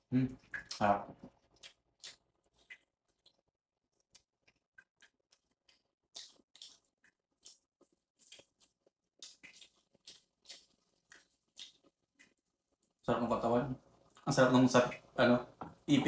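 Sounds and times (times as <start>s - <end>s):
chewing corn on the cob: 0.3s - 13.1s.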